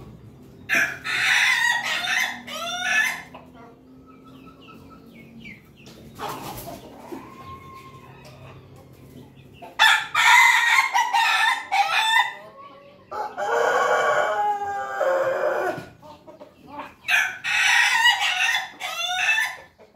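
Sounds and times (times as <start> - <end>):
roosters crowing: 0.0 - 3.4, 6.2 - 16.0, 17.0 - 19.8.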